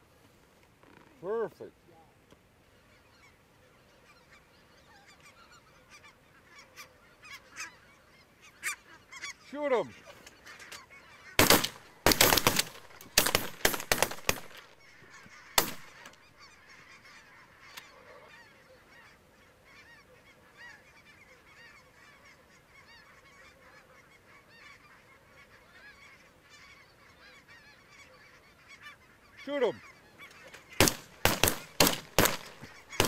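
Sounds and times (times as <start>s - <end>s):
geese honking: 2.7s - 33.0s
shotgun blasts: 11.4s - 14.8s, 15.6s - 16.1s, 30.7s - 33.0s.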